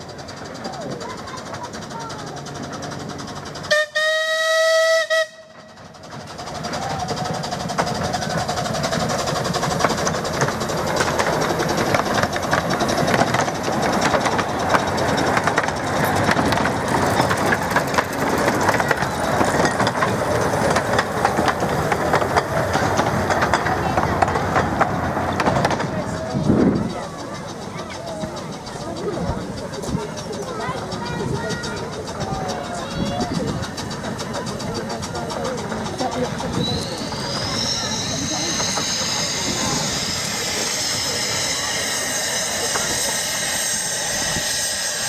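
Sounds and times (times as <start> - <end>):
wheel clicks over rails: 0.0 - 3.7, 5.6 - 44.6
train carriages rumbling: 0.0 - 45.0
steam locomotive whistle: 3.7 - 5.8, 36.6 - 45.0.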